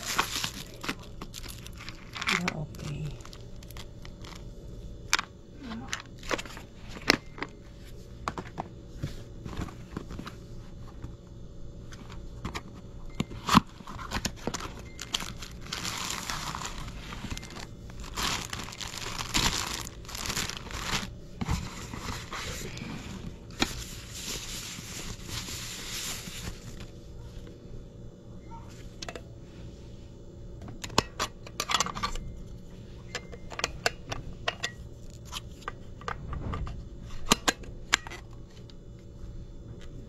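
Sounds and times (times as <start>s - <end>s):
paper and plastic crinkling: 0.0s - 4.5s, 13.3s - 27.4s.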